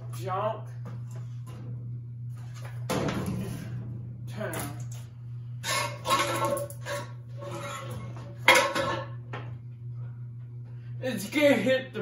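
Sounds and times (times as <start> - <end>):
ceiling fan rattling: 2.5 - 9.4.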